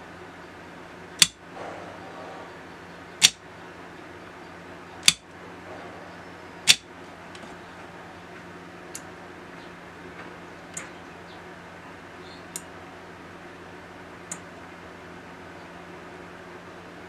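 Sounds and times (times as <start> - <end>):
faint hum: 0.0 - 17.0
lock circuit clicking: 1.2 - 1.4, 3.2 - 3.4, 5.0 - 5.3, 6.6 - 7.4.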